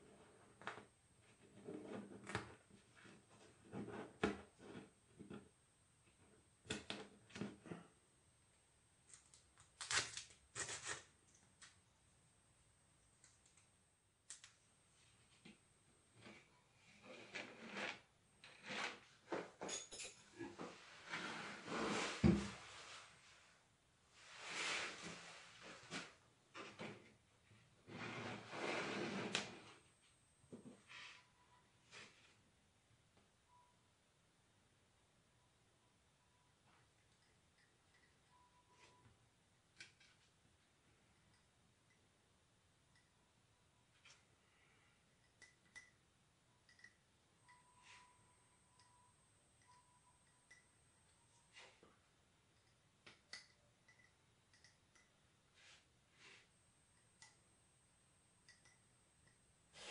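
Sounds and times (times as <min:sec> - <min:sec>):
plastic and tools sliding and rustling: 0:16.2 - 0:19.8, 0:20.4 - 0:23.5, 0:24.1 - 0:29.9, 0:30.6 - 0:32.4, 0:47.6 - 0:49.0, 0:51.2 - 0:52.0, 0:55.5 - 0:56.6.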